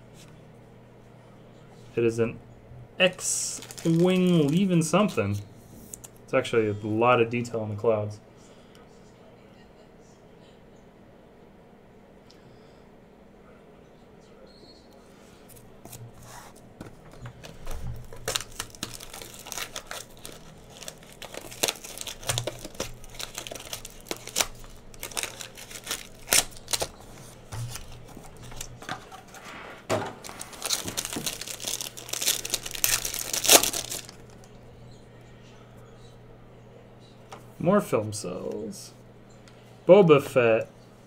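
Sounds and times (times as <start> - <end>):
plastic wrapper crinkling and tearing: 3.4 - 6.1, 17.4 - 29.0, 30.2 - 34.5.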